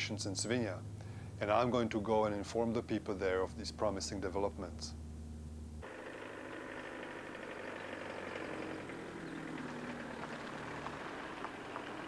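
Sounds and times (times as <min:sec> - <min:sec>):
van driving past: 0:05.1 - 0:12.0.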